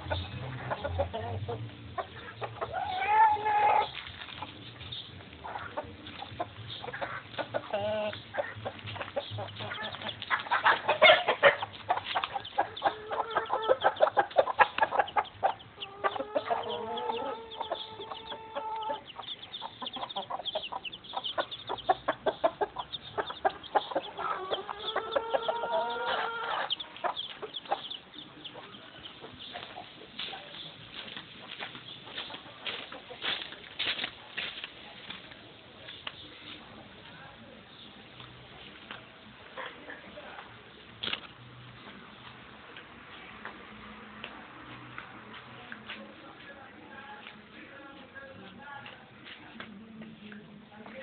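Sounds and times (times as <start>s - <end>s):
long drawn-out chicken calls: 0.0s - 4.5s, 5.4s - 29.8s
chickens clucking: 0.0s - 43.7s.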